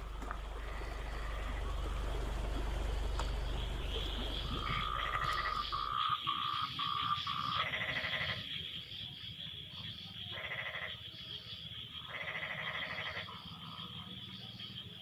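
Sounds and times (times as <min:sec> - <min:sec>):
low rumble: 0:00.0 - 0:07.5
fast pulsed frog call: 0:00.0 - 0:15.0
frogs croaking: 0:00.0 - 0:15.0.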